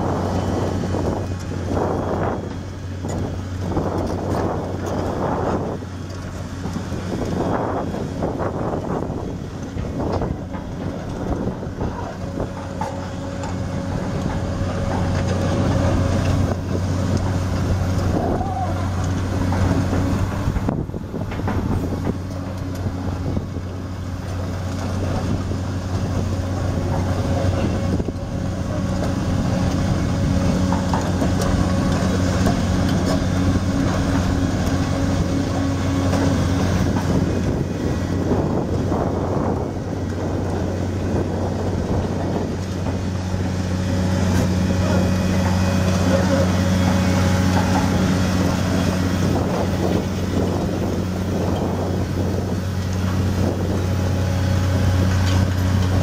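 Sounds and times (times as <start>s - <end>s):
excavator diesel engine under load: 0.0s - 56.0s
hydraulic whine: 0.0s - 56.0s.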